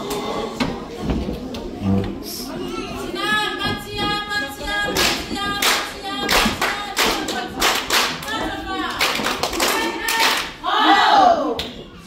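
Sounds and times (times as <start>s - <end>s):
rhythmic hand-clapping: 4.1s - 10.6s.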